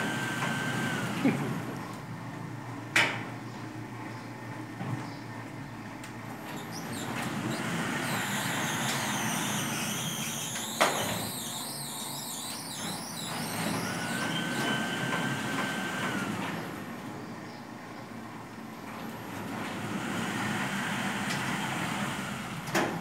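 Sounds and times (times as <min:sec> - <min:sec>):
metal gate mechanism squealing: 0:06.4 - 0:15.3.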